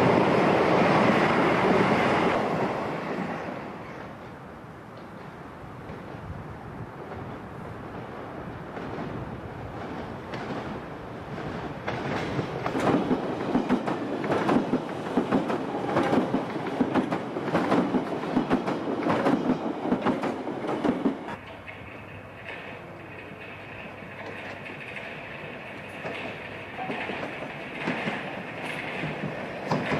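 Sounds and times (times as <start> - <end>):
train rumbling: 0.0 - 29.9
wheels clattering over rail joints: 11.7 - 29.9.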